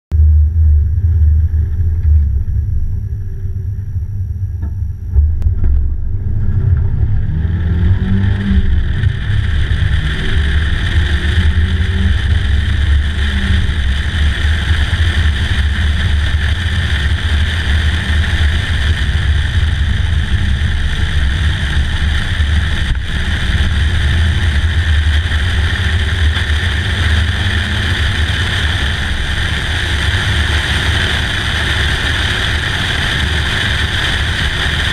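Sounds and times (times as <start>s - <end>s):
car engine accelerating: 0.1s - 34.9s
thump: 4.6s - 6.9s.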